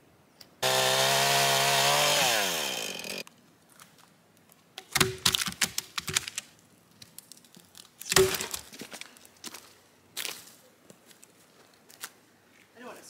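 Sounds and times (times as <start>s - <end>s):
chainsaw engine winding down: 0.6s - 3.2s
wooden logs knocking and crackling: 4.8s - 9.2s.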